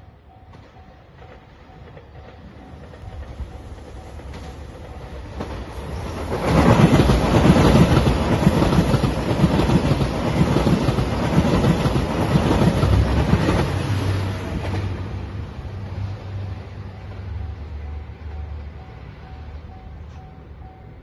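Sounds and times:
diesel train passing: 0.0 - 21.0
wheels clacking over rail joints: 0.5 - 15.5.

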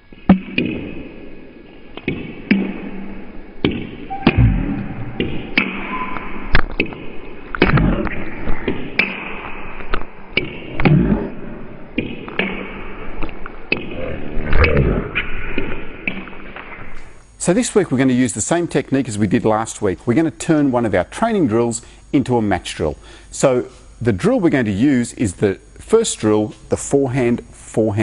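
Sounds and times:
low thuds: 3.6 - 5.7.

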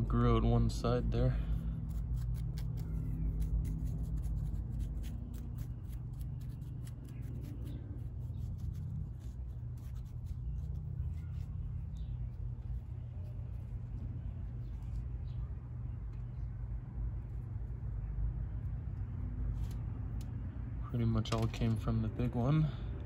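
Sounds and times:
tool scratching soil: 1.9 - 12.1.

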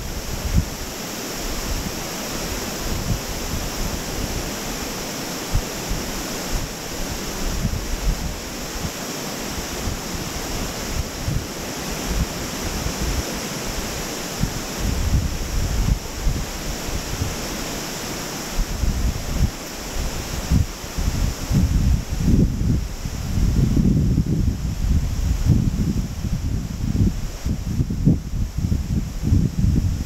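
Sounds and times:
river rushing over rocks: 0.0 - 23.6
wind buffeting microphone: 0.0 - 30.0.

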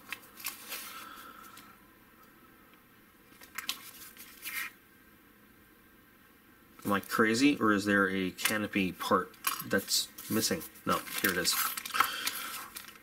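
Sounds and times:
plastic packaging crinkles: 0.0 - 1.6, 3.3 - 4.7, 10.2 - 13.0
foam sleeve rustling on plastic: 10.2 - 13.0.

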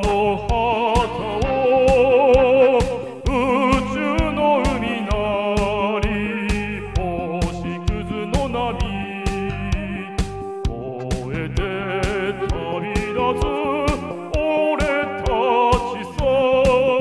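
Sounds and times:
backing track with steady beat: 0.0 - 17.0
man singing into a microphone: 0.0 - 17.0.

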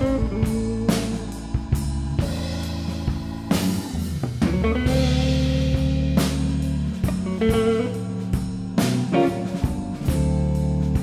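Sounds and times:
electric guitar lead notes: 0.0 - 1.5, 4.3 - 11.0
blues band playing: 0.0 - 11.0.

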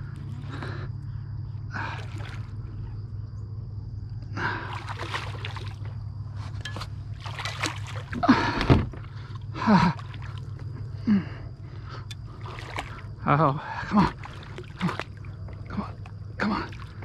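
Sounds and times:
steady low hum: 0.0 - 17.0
fish thrashing and splashing water: 1.8 - 2.6, 4.5 - 10.8, 12.1 - 17.0.

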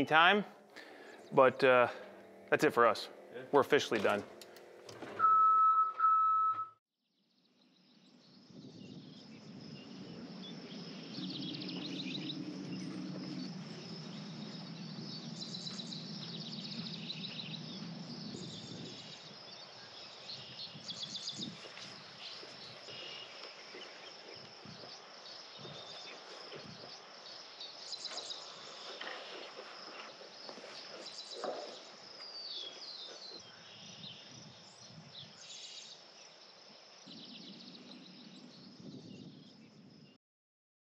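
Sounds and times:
birds chirping: 0.0 - 5.5, 7.8 - 40.2
high insect drone: 7.8 - 40.1.

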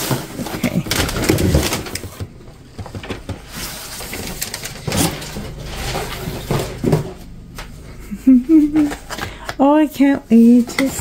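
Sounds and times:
cardboard and foam rustling: 0.0 - 7.4.

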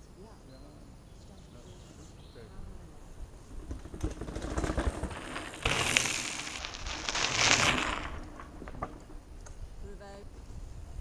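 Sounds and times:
bike tyres crunching over gravel: 3.4 - 9.4
bike knocking down steps: 3.5 - 9.3.

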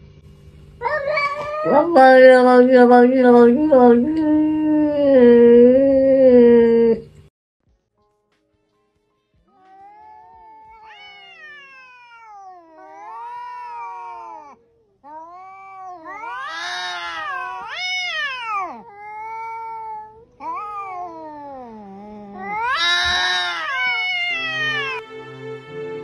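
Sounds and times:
cat yowling: 0.8 - 2.3, 9.6 - 25.0.

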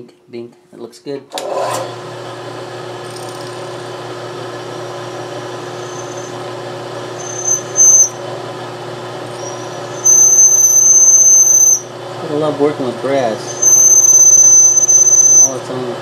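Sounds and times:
milling machine spindle running: 1.4 - 16.0
drill bit squealing in brass: 5.6 - 6.4, 7.1 - 8.2, 9.3 - 11.9, 13.3 - 15.7.

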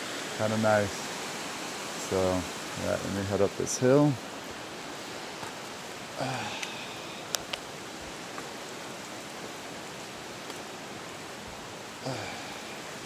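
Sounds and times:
running water hiss: 0.0 - 13.0.

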